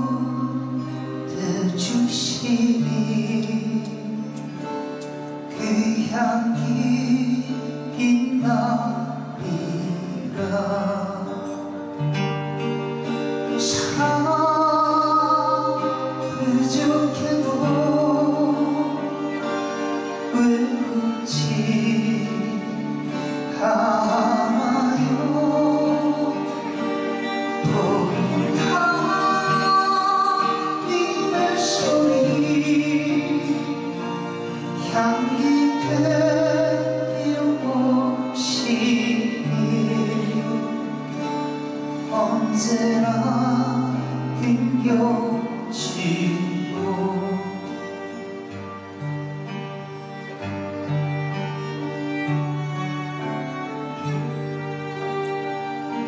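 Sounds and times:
slow worship song by live band: 0.0 - 50.2
singing: 27.6 - 40.9.

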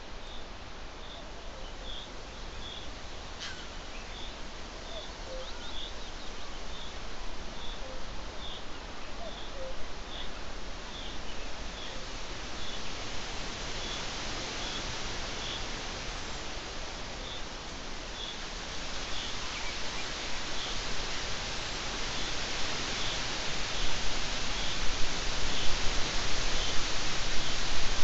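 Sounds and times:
steady hiss: 0.0 - 28.0
bird short high call: 3.4 - 3.8.

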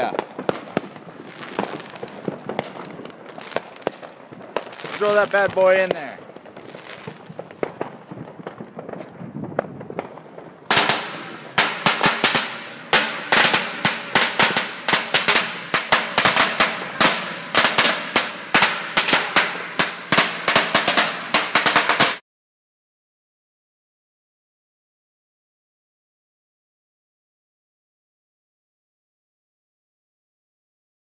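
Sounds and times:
firecrackers cracking: 0.0 - 22.2.

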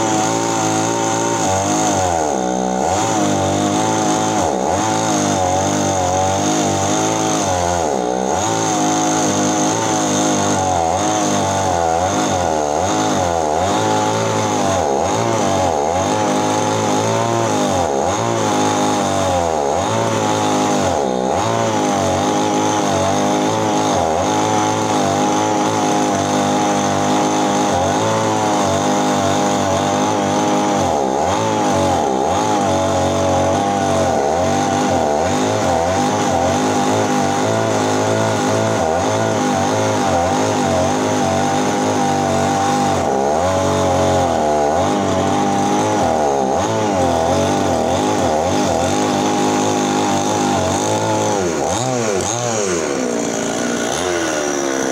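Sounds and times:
chainsaw cutting wood: 0.0 - 54.9.

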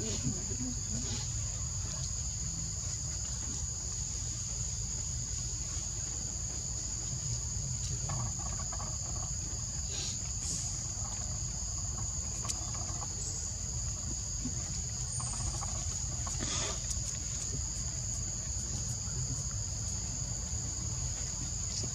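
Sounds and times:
insects droning: 0.0 - 21.9.

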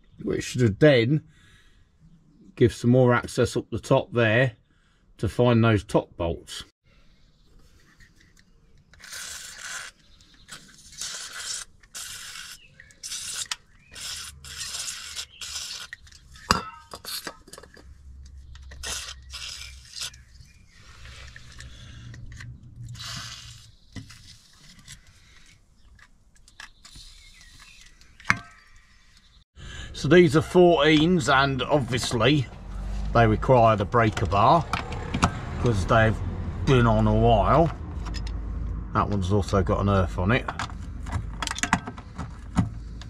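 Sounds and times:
metal tools clinking and scraping: 15.4 - 18.8.

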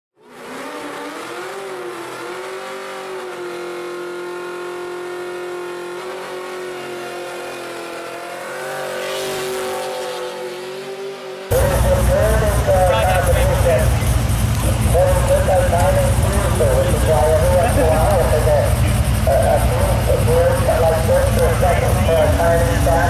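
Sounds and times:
car engine at high revs: 0.2 - 23.0
spinning tyres hissing: 11.5 - 23.0.

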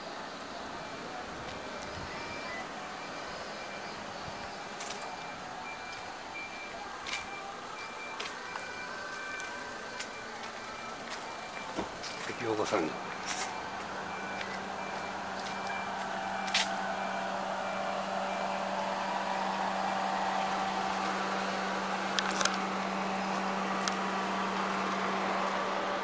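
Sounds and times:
vehicle engine running: 0.0 - 26.0
faint high-pitched beep: 0.8 - 18.7.

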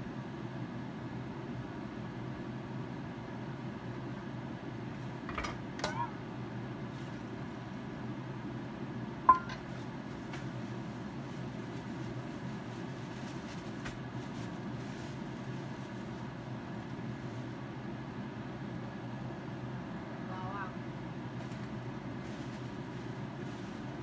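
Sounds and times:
kitchenware clinking: 9.3 - 9.7.

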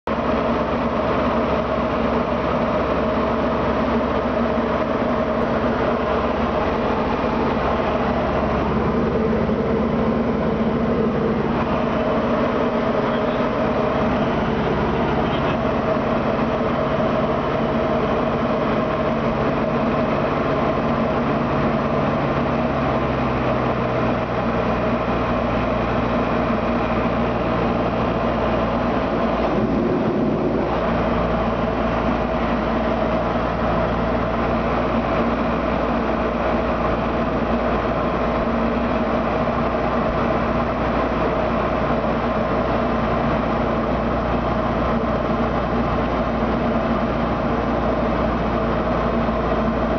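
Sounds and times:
propeller engine drone in cabin: 0.0 - 49.9.

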